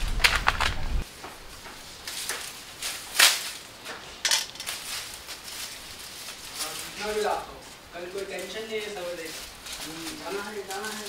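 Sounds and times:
dry twigs and leaves crunching: 0:00.0 - 0:11.0.

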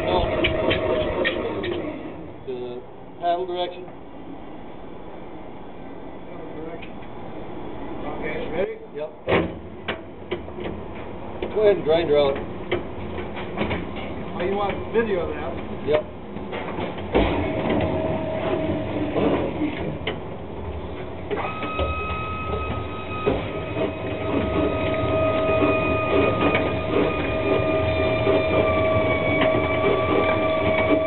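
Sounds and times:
higher whine: 0:17.1 - 0:31.0
mixer grinder motor whine: 0:21.3 - 0:31.0.

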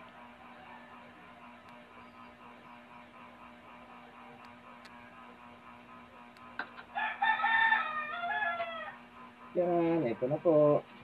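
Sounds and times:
rooster crowing: 0:00.4 - 0:01.6, 0:06.9 - 0:09.0.

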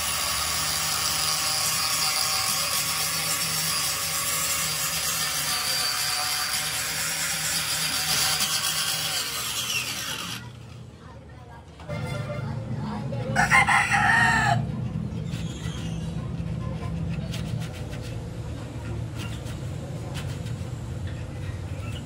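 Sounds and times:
rooster crowing: 0:13.3 - 0:14.7.

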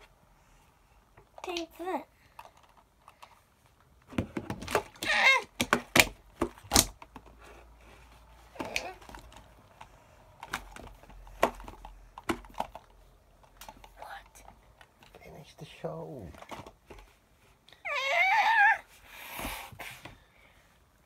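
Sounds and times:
plastic toys knocking and clicking: 0:01.2 - 0:03.4, 0:04.0 - 0:07.5, 0:08.5 - 0:15.2, 0:16.3 - 0:17.1
child's voice: 0:01.4 - 0:02.1.

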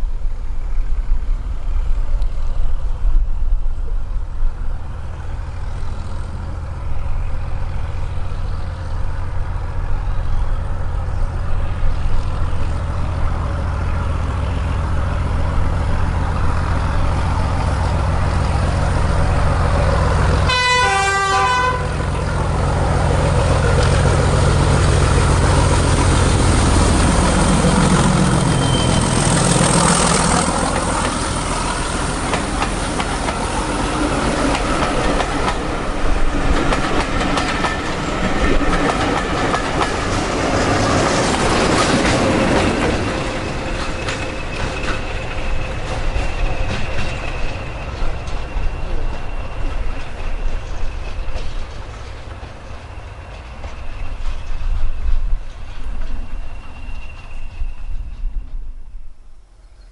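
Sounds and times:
coaches rumbling over rails: 0:00.0 - 0:58.9
diesel locomotive engine: 0:00.0 - 0:59.7
train horn blast: 0:20.4 - 0:22.2.

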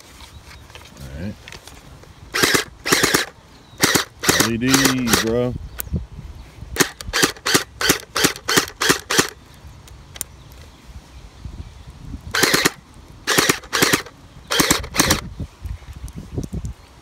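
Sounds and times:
toy blaster dry-firing bursts: 0:02.3 - 0:05.4, 0:06.8 - 0:09.4, 0:12.3 - 0:15.3.

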